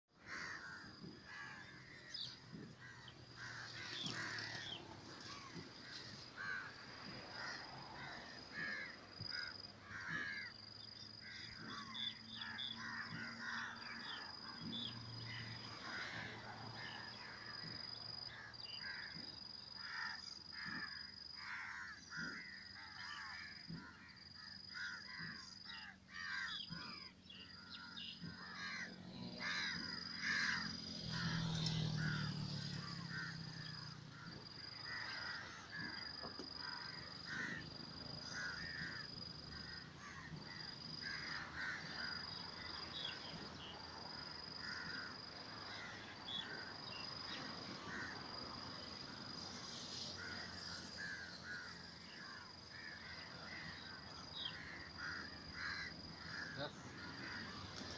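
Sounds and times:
crows cawing: 0:00.2 - 0:57.9.

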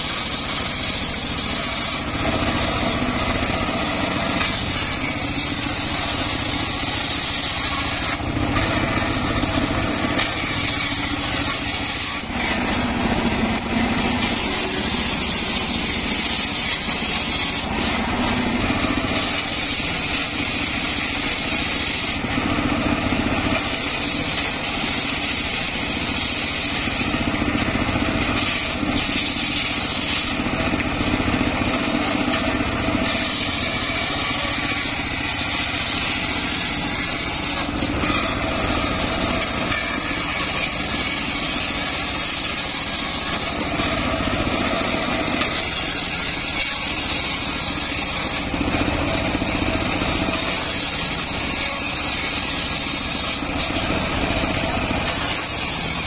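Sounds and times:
circular saw blade ripping wood: 0:00.0 - 0:56.0
engine running: 0:00.0 - 0:56.0.

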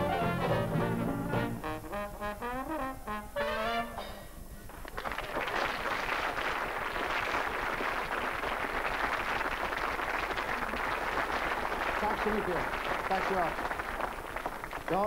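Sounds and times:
audience applauding: 0:04.7 - 0:15.0.

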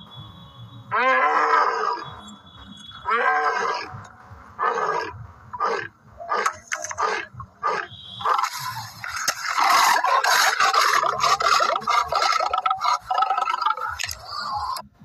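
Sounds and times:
lion grunting calls: 0:03.0 - 0:14.8
lion growling roar: 0:04.6 - 0:08.5, 0:09.4 - 0:14.8.

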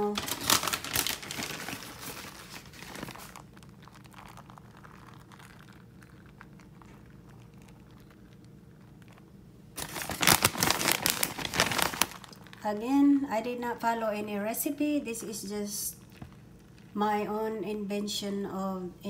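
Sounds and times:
cheese rustling: 0:00.0 - 0:13.4
cheese sprinkled soft patters: 0:01.0 - 0:10.1, 0:11.0 - 0:17.8.

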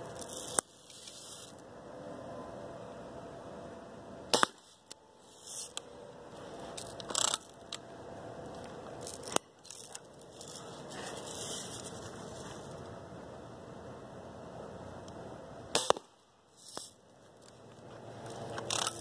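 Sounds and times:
air gun firing: 0:04.3 - 0:04.7, 0:15.7 - 0:16.9
small clicks: 0:18.2 - 0:19.0.

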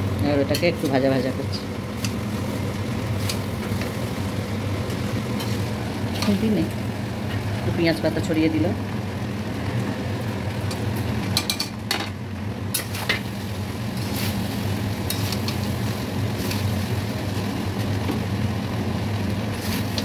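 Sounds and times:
steady low hum: 0:00.0 - 0:20.0
metal spatula scraping wok: 0:04.9 - 0:06.5.

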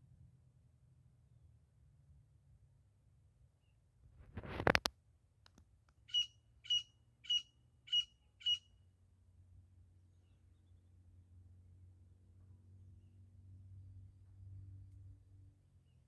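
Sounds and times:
partridge short sharp calls: 0:06.1 - 0:08.7.

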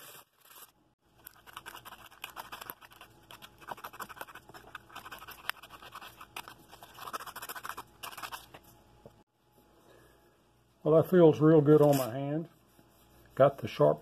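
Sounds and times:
sandpaper scratching wood: 0:01.4 - 0:08.5.

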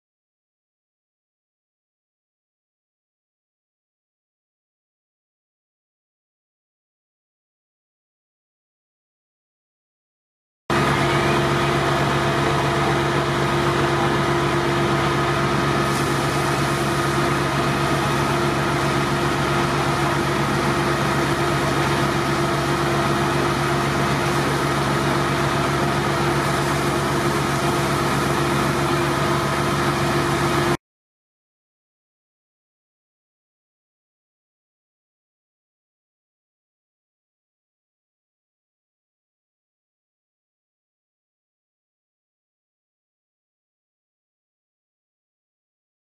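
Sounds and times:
engine droning steadily: 0:10.7 - 0:30.8.

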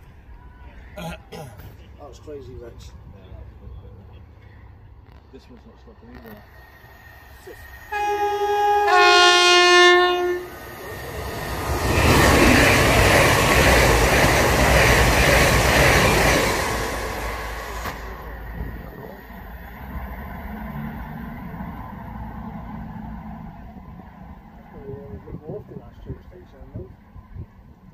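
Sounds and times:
train rushing past: 0:01.9 - 0:27.5
two-tone train horn: 0:07.9 - 0:10.6.

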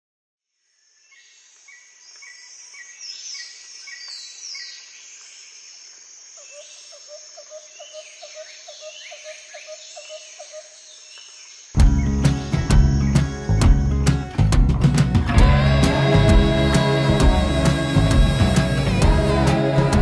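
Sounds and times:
high insect hum: 0:00.8 - 0:11.8
bird chirps: 0:06.4 - 0:14.3
low repeated bird call: 0:06.4 - 0:14.3.

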